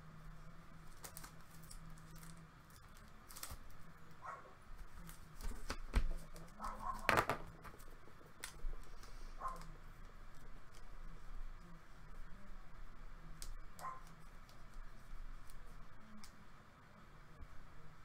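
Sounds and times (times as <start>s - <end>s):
crinkly plastic rustling: 0.7s - 11.2s.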